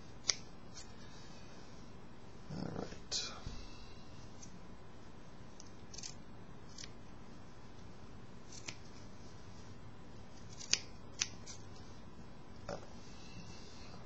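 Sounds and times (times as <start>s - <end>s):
scissors snipping fabric: 0.2s - 0.9s, 5.6s - 7.0s, 8.5s - 8.9s, 10.5s - 11.6s.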